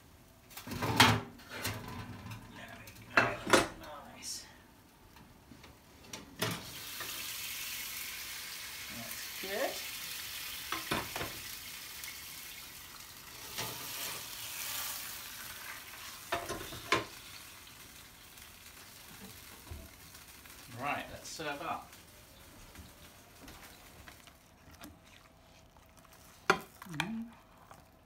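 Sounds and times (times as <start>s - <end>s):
fish sizzling in a pan: 6.4s - 24.2s.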